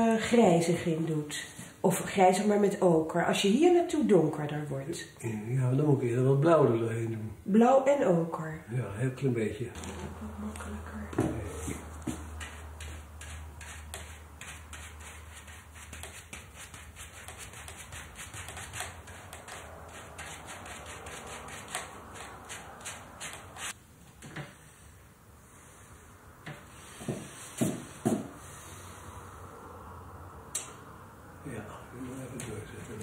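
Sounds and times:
paintbrush scrubbing on canvas: 11.4s - 23.8s.

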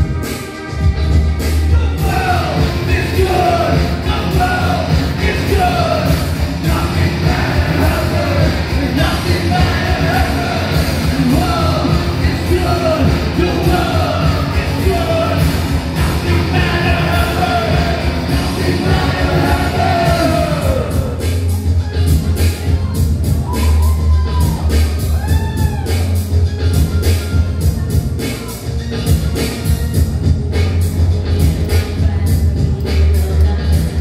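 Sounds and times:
driving beat with heavy bass: 0.0s - 34.0s
person singing and yelling: 1.7s - 21.5s.

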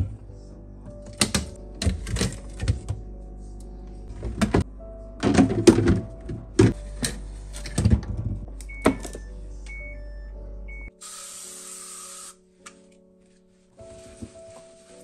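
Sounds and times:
plastic drawers clattering and scraping: 1.0s - 3.0s, 5.2s - 8.4s
spray can hissing: 11.0s - 12.4s.

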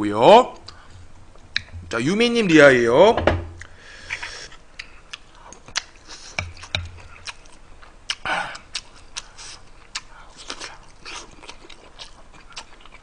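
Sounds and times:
chewing: 3.6s - 13.0s.

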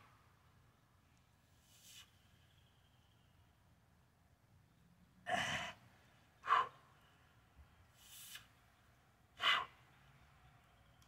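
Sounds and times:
man breathing hard: 9.4s - 9.9s.

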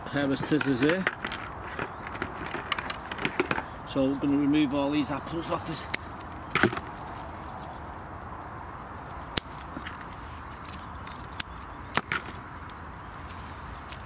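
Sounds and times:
faint outdoor hiss: 0.0s - 14.0s.

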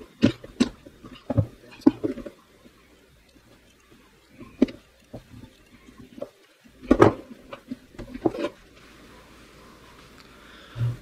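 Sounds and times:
clicks and knocks of handling: 0.1s - 2.4s.

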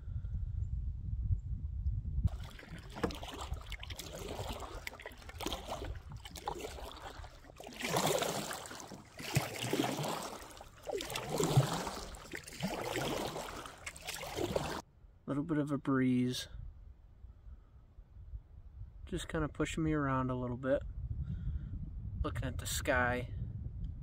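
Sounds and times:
canoe paddle strokes in water: 2.3s - 14.8s
water splashing and dripping: 2.3s - 14.8s.

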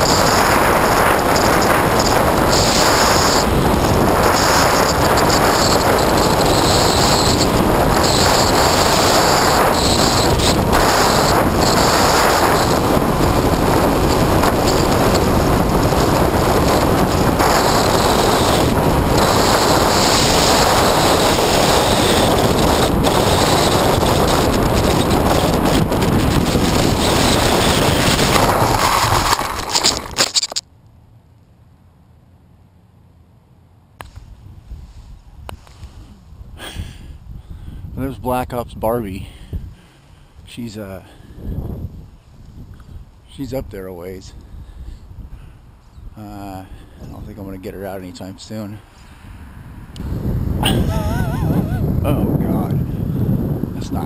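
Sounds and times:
faint high whine: 0.0s - 25.2s
wind rushing over microphone: 0.0s - 30.6s, 34.0s - 54.0s.

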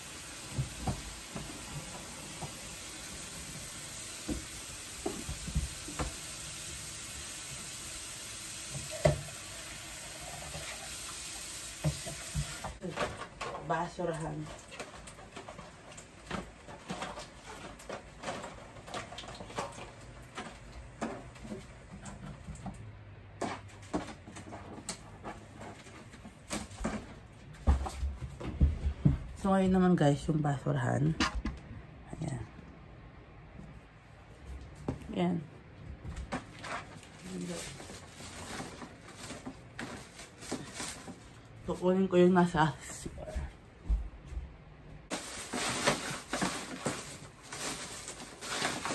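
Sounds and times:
water running into sink: 0.0s - 12.8s
knocks and clicks of household items: 0.5s - 2.7s, 4.2s - 6.3s, 8.7s - 9.4s, 11.8s - 13.8s, 14.7s - 29.4s.

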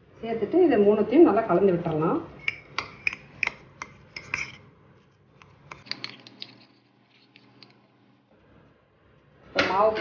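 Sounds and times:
spoon clicking against ceramic bowl: 2.4s - 4.5s.

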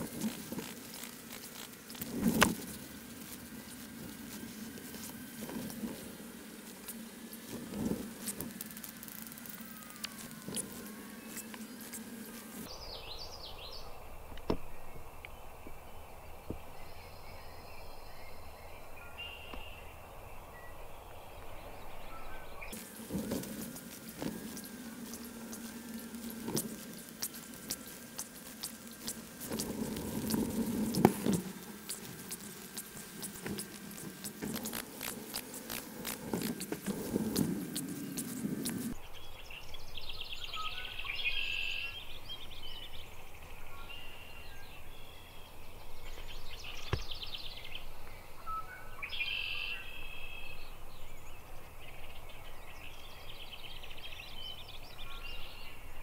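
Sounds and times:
close rustling with clicks: 0.0s - 12.7s.

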